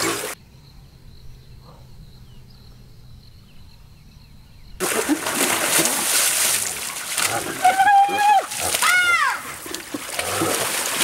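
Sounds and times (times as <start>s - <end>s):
splashing water rush: 4.8s - 11.0s.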